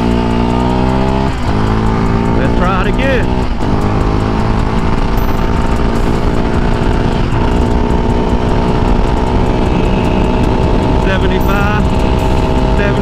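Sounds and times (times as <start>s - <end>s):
quad engine at full throttle: 0.0s - 13.0s.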